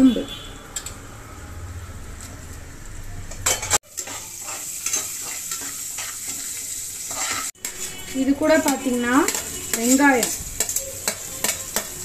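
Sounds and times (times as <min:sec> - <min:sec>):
spices sizzling in hot oil: 0:00.0 - 0:12.0
metal spoon scraping a pan: 0:03.3 - 0:12.0.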